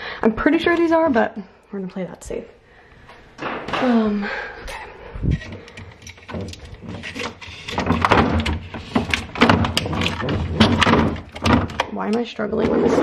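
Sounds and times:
knocks and clatter: 5.2s - 13.0s
freezer drawer rattling: 5.3s - 13.0s.

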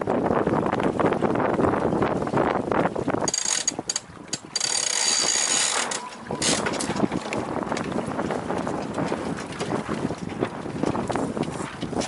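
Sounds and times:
wind buffeting microphone: 0.0s - 12.0s
high whir of deck winch: 3.3s - 6.9s.

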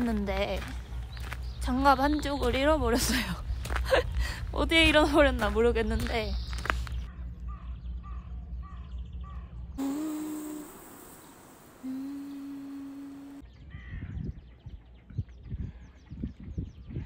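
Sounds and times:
street noise with steady hum: 0.0s - 15.5s
wind rumble: 12.5s - 17.0s.

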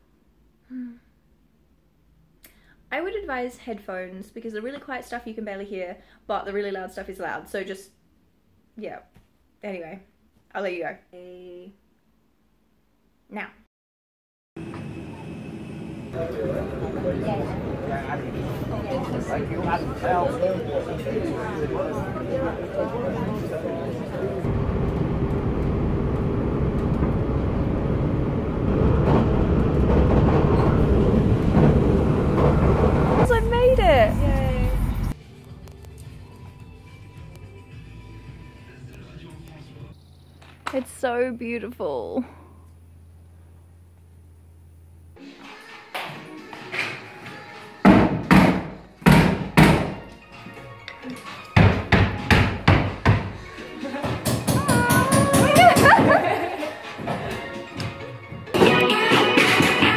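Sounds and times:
train rumble from inside carriage: 14.6s - 35.2s
music with percussive hits: 47.8s - 50.2s, 54.0s - 59.9s.

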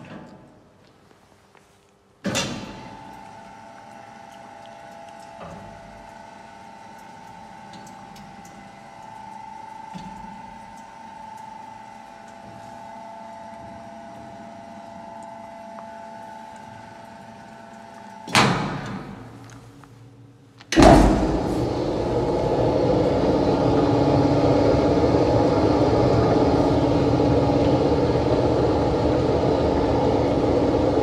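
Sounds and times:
loud clunk: 20.7s - 22.0s
meat mincer motor humming: 21.8s - 31.0s.

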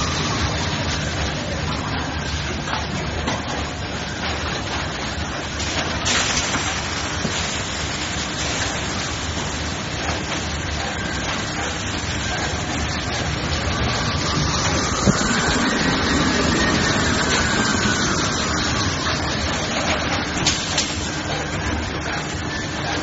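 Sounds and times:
production line mechanical rush: 0.0s - 23.0s
machine hiss: 5.8s - 23.0s.

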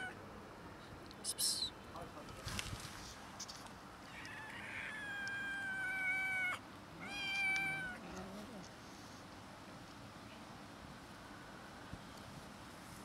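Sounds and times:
kitten meowing: 4.1s - 8.0s.

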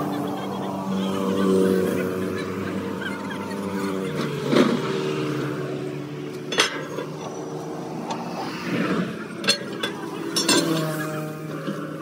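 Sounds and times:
metal scraping: 6.4s - 11.9s
metallic knocks of steel springs: 9.4s - 11.0s.

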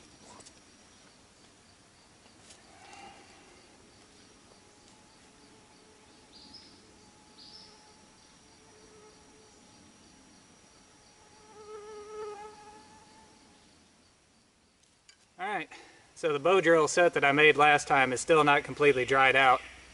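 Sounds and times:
insects high whine: 0.0s - 15.4s
faint pulsing insect: 0.0s - 16.2s
flying insect buzzing: 2.5s - 13.8s.

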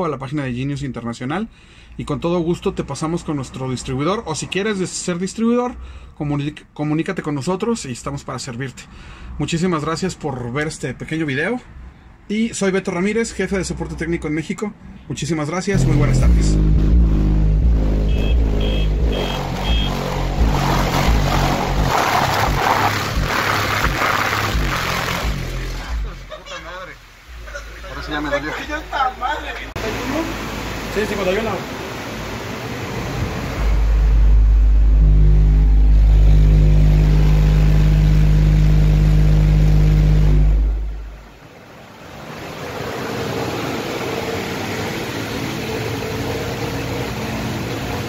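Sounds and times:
deep subwoofer test tone: 15.7s - 26.0s, 33.6s - 41.2s
rough noisy buzz: 15.8s - 25.6s, 33.4s - 41.2s
loud music with deep bass: 15.8s - 26.2s, 34.2s - 41.0s
short high beeps: 18.1s - 20.0s.

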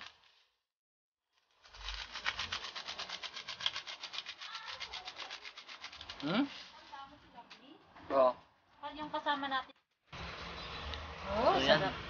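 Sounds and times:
foil sachet shaken: 1.3s - 7.2s.

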